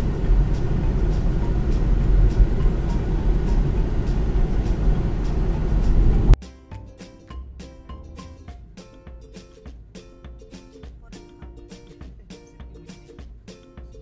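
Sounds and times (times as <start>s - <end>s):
road and tyre noise: 0.0s - 6.4s
quiet music: 0.0s - 14.0s.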